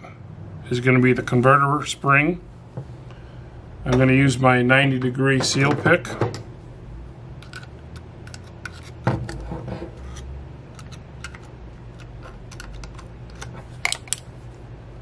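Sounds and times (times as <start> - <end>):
steady low hum: 0.0 - 15.0
metallic clicks and scrapes: 7.4 - 14.3.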